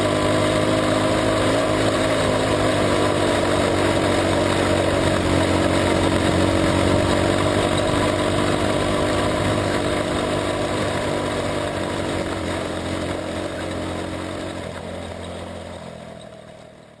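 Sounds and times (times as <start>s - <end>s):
race car engine running: 0.0s - 17.0s.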